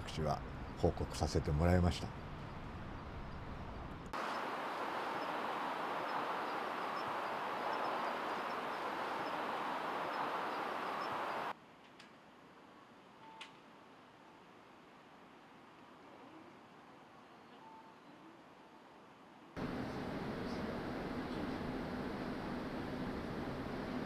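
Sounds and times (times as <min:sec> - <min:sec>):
forest rushing noise: 0:04.1 - 0:11.6, 0:19.6 - 0:24.0
faint high chirps: 0:04.2 - 0:11.5.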